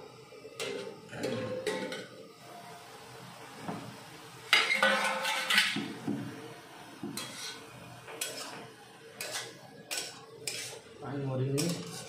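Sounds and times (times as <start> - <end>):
metal spatula scraping pan: 4.5 - 5.9, 7.2 - 8.6, 9.2 - 10.8, 11.6 - 12.0.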